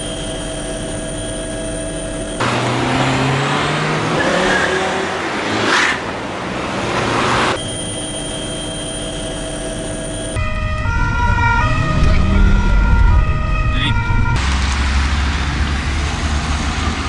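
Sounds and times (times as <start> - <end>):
helicopter engine hum and whine: 0.0 - 2.8, 7.6 - 14.5
siren: 0.0 - 3.4, 7.5 - 14.8
cars driving off: 0.0 - 17.0
car passing by: 2.4 - 7.6.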